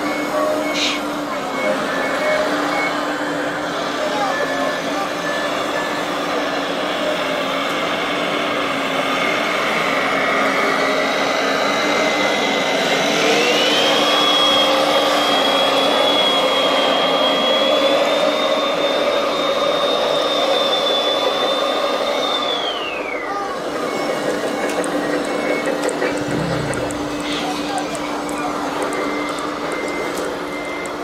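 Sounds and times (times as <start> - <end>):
hum of model machines: 0.0 - 31.0
electric motor and gearbox whining: 22.4 - 31.0.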